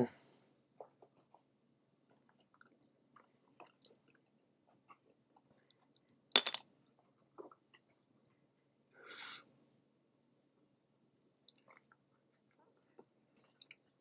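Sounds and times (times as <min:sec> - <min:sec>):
person chewing close to microphone: 0:00.8 - 0:06.2, 0:06.9 - 0:08.6, 0:11.5 - 0:14.0.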